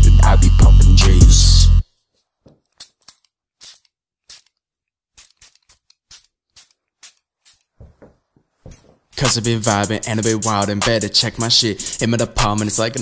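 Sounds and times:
scissors snipping hair: 2.7s - 4.6s, 5.2s - 7.7s.

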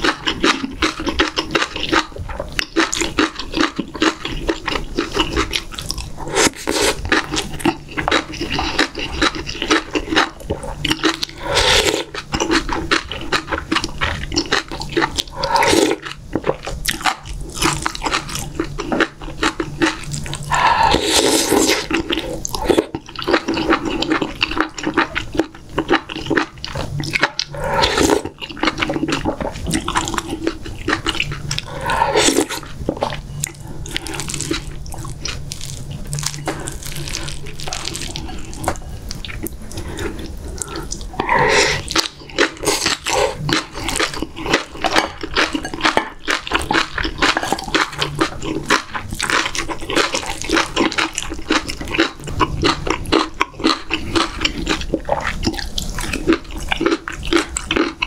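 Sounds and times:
chewing crunchy food: 0.0s - 58.0s
person slurping broth: 6.2s - 7.0s, 11.1s - 12.2s, 15.3s - 16.1s, 20.4s - 22.9s, 27.3s - 28.4s, 30.4s - 34.6s, 39.7s - 44.0s.

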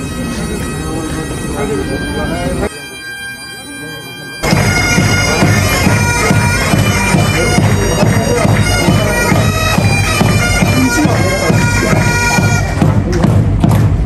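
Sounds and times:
bagpipes playing a march: 0.0s - 13.1s
low drum beat: 4.4s - 14.0s.

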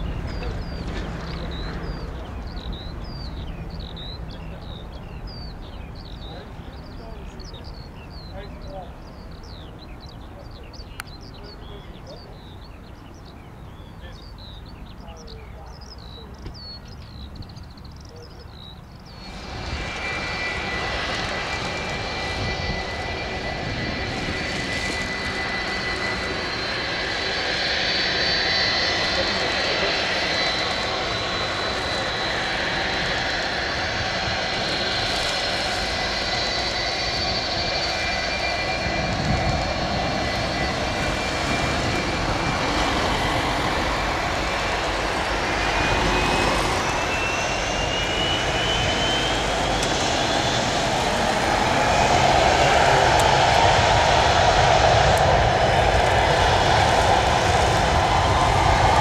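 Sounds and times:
small birds chirping: 0.0s - 52.8s
jet rumble: 0.0s - 59.0s
high steady whine: 19.2s - 59.0s.

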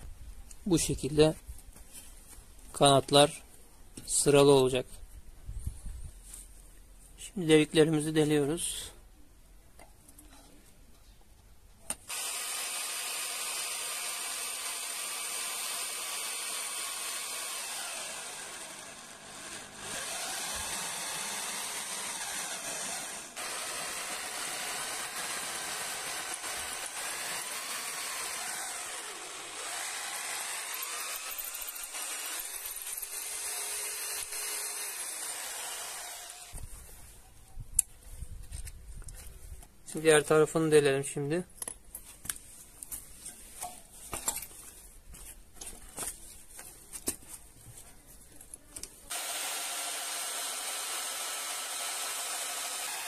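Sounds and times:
electric drill boring through steel: 12.1s - 36.6s, 49.1s - 53.0s.

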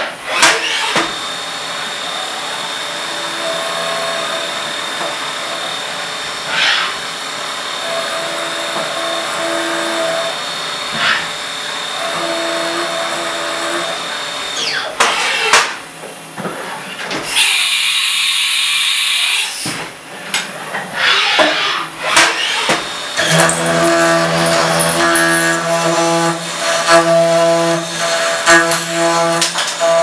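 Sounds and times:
milling machine cutting metal: 2.0s - 15.5s, 21.2s - 30.0s.

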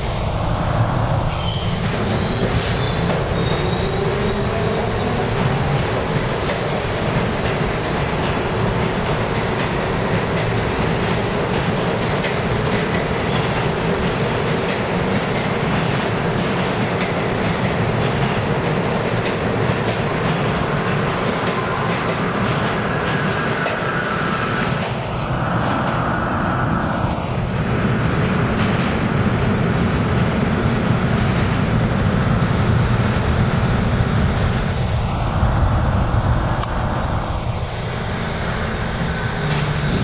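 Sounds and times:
subway train wheels on rails: 0.0s - 40.0s
wheel squeal: 1.3s - 4.3s, 39.2s - 40.0s.

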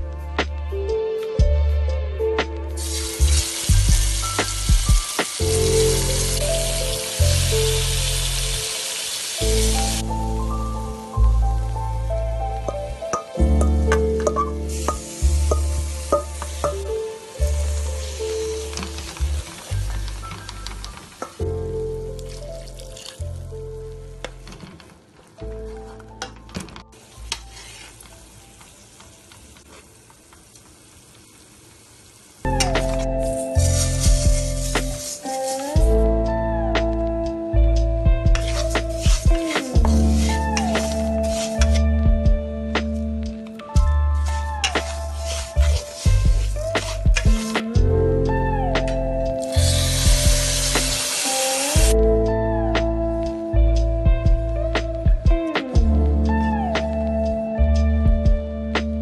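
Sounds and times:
background music with bass line: 0.0s - 8.7s, 9.4s - 24.4s, 32.5s - 35.1s, 35.7s - 59.0s
chicken sizzling in oil: 2.8s - 12.0s, 14.2s - 21.4s, 27.0s - 36.0s, 38.3s - 41.8s, 44.2s - 47.5s, 49.4s - 52.0s.

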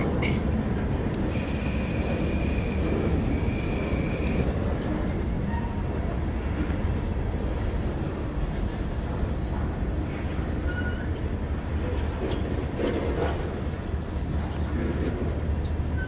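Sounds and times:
steel wheels rumbling on rails: 0.0s - 16.0s
high wheel squeal: 5.4s - 6.1s, 10.6s - 11.2s.

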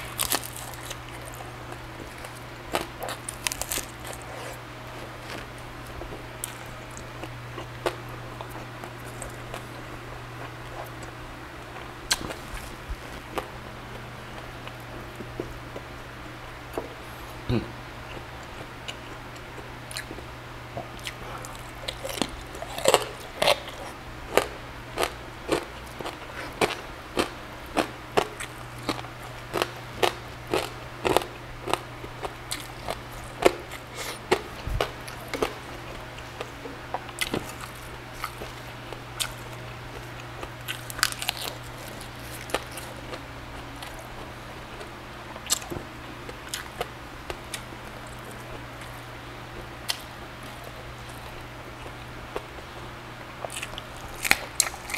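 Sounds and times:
chewing and crunching food: 0.0s - 16.0s, 18.0s - 54.9s.

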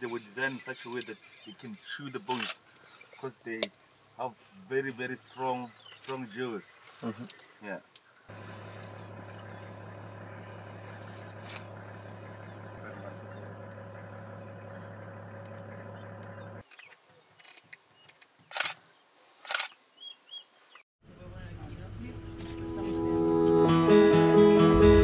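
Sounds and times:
vehicle engine idling: 8.3s - 16.6s.

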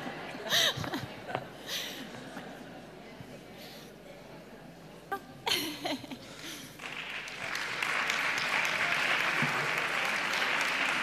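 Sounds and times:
audience applauding: 6.8s - 11.0s.

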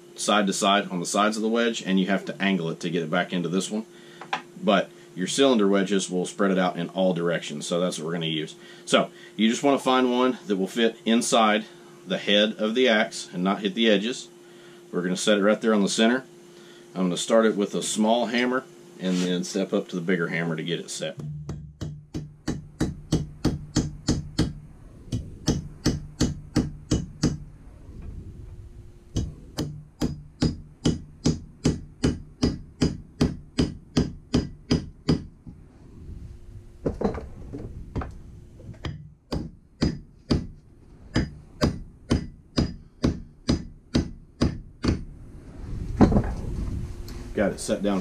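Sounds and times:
hammer striking metal wedge: 21.2s - 24.6s, 25.4s - 27.4s, 29.2s - 35.3s, 41.1s - 45.1s.

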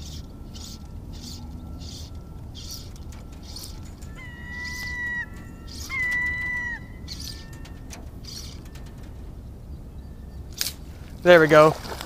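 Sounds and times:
fly line hissing through rod guides: 0.0s - 4.0s
bird whistled call: 0.0s - 8.9s.

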